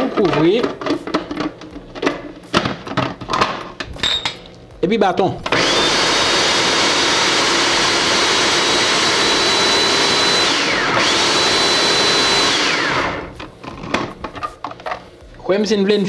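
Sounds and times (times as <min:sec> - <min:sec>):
food processor motor whining: 0:05.5 - 0:14.0.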